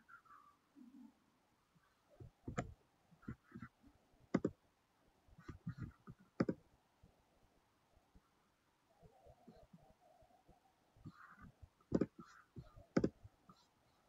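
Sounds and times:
computer mouse and keyboard clicking: 4.3 - 4.6, 5.4 - 6.6, 11.9 - 13.2.

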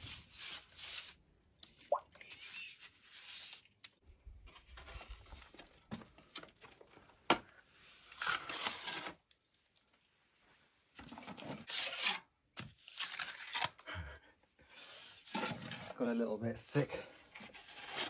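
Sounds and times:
trowel scraping mortar: 0.0 - 1.2, 7.8 - 9.4, 11.2 - 13.8, 14.8 - 18.0.

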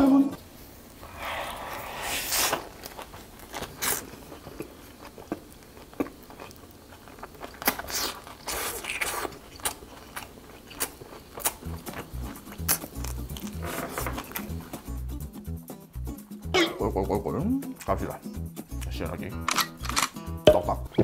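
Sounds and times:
close-up chewing and mouth sounds: 2.4 - 13.6.

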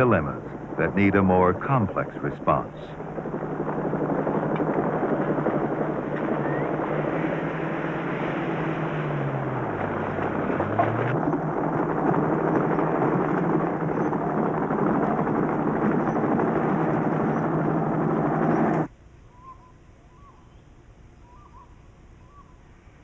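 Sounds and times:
helicopter: 0.0 - 18.9
vehicle engines rumbling: 0.0 - 18.9
soft bird calls: 6.2 - 8.0, 19.2 - 23.0.

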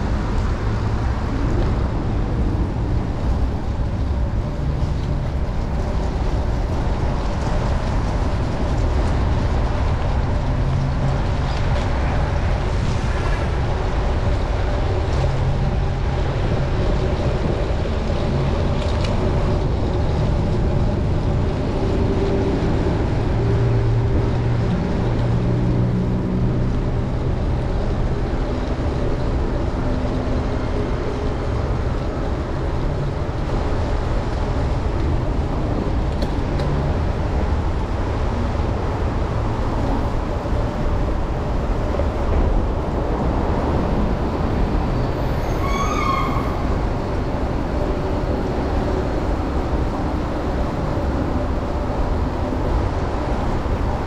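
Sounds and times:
traffic rumble: 0.0 - 54.0
vehicle engines passing: 0.0 - 54.0.

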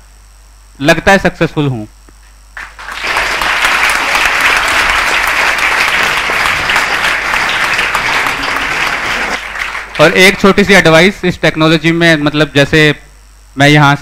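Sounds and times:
crowd applauding: 2.6 - 10.8.

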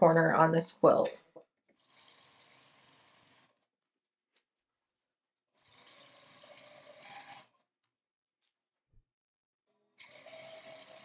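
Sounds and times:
sewing machine stitching: 1.7 - 3.7, 5.6 - 7.6, 10.0 - 11.0.

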